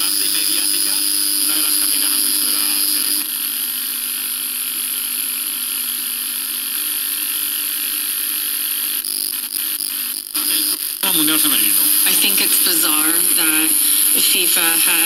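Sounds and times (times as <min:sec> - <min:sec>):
radio hiss and hum: 0:00.0 - 0:15.0
radio station audio: 0:00.0 - 0:15.0.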